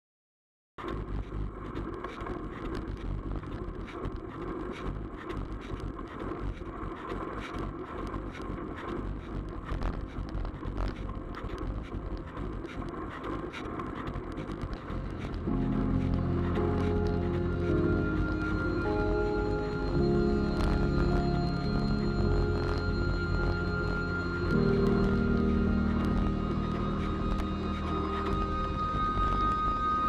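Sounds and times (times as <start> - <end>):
bike tyre road rumble: 0.8 - 30.0
music: 14.7 - 30.0.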